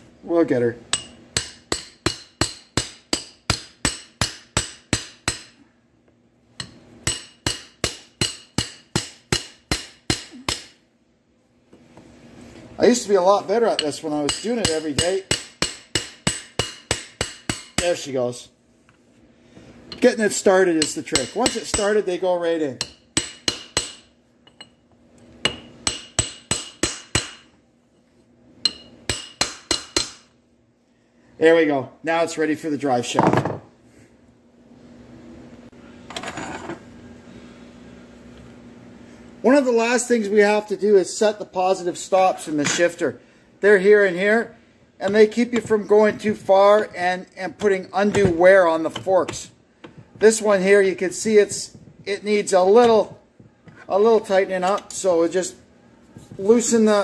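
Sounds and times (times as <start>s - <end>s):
hammer striking steel pipe: 0.9s - 5.6s, 6.6s - 10.8s, 13.8s - 17.9s, 22.8s - 24.6s, 25.4s - 27.5s, 28.6s - 30.3s.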